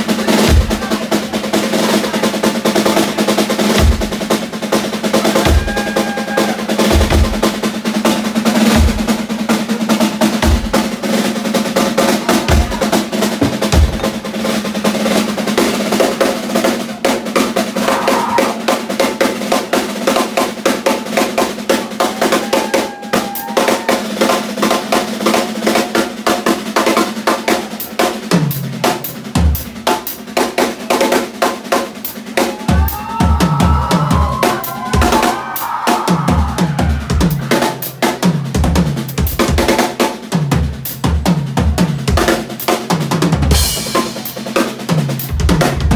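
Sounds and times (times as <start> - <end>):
rapid snare and cymbal hits: 0.0 - 45.9
bass drum kicks: 13.4 - 14.2, 45.3 - 45.9.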